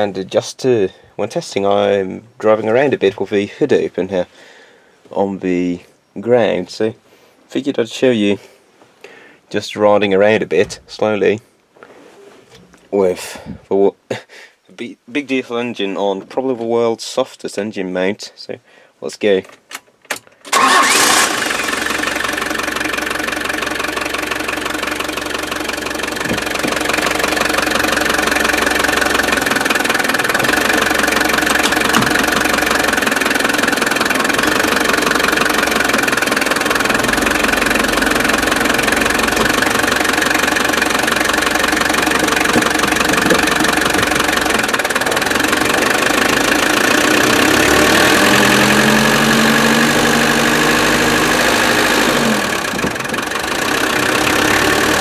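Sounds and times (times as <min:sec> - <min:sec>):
diesel engine starting and running: 0:20.4 - 0:55.0.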